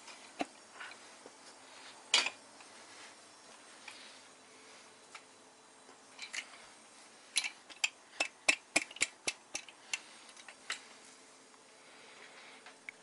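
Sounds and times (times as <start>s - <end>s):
hand tools clicking on metal: 7.3s - 10.9s.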